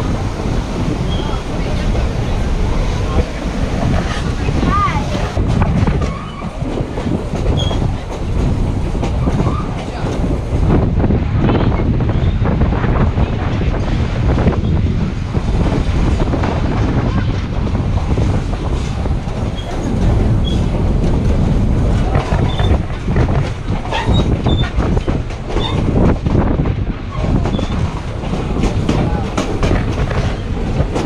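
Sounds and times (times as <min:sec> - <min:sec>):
train rumble: 0:00.0 - 0:31.0
wheels clattering over track: 0:15.5 - 0:31.0.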